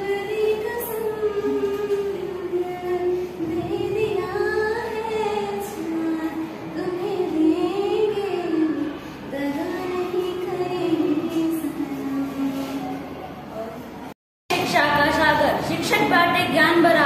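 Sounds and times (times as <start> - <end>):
girl singing unaccompanied: 0.0 - 13.4.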